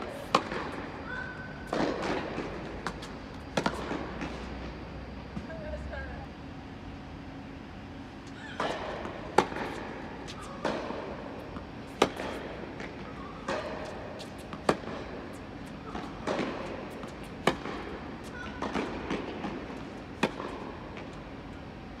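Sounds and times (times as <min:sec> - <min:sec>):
racket hitting tennis ball: 0:00.1 - 0:04.5, 0:08.4 - 0:21.2
tennis ball bouncing: 0:00.2 - 0:04.7, 0:08.4 - 0:21.6
shoes scuffing on court: 0:09.4 - 0:10.8, 0:11.4 - 0:19.2.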